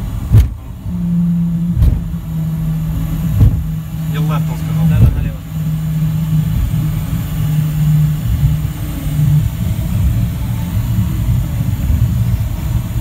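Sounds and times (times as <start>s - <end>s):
jet cockpit rumble: 0.0s - 13.0s
low wavering drone: 0.0s - 13.0s.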